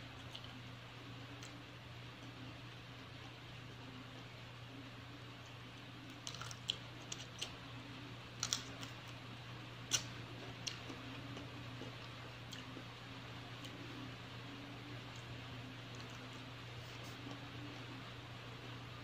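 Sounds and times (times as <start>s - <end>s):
steady low hum: 0.0s - 19.0s
chewing clicks and smacks: 0.2s - 0.6s, 8.4s - 9.2s, 9.9s - 12.9s.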